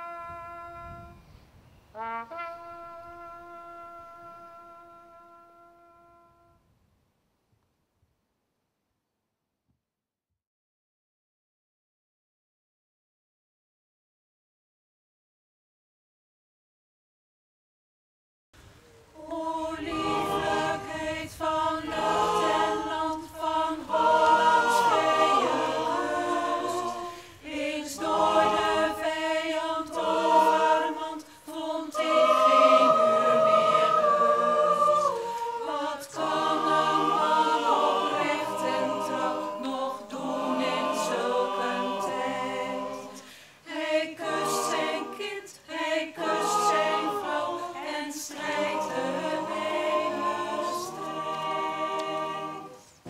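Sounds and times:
mixed choir singing: 19.1s - 53.0s.

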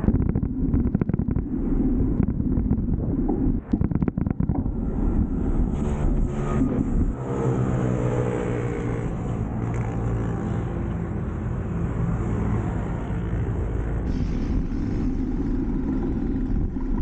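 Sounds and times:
low rumble: 0.0s - 9.6s, 13.7s - 17.0s.

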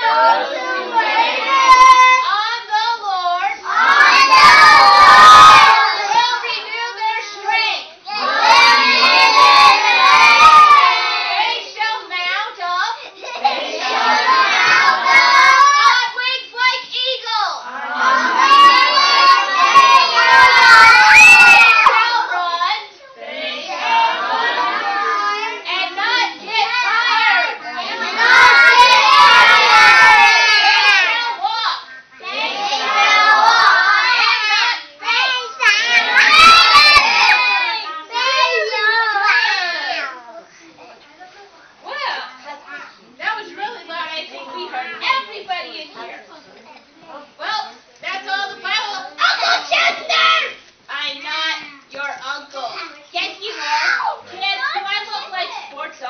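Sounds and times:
children shouting together: 0.0s - 2.4s, 3.6s - 11.8s, 13.2s - 22.5s, 23.2s - 40.2s, 49.2s - 50.6s.

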